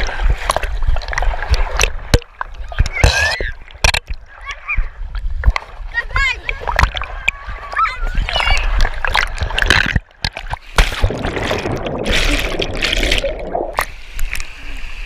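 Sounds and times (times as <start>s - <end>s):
plunge into pool water: 6.5s - 14.5s.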